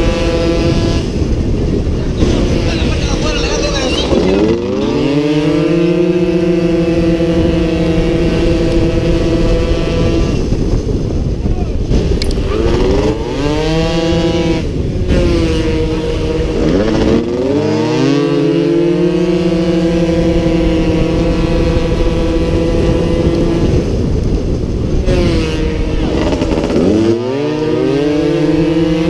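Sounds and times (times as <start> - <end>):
motorcycle engine at high revs: 0.0 - 29.0
wind rushing over microphone: 0.0 - 29.0.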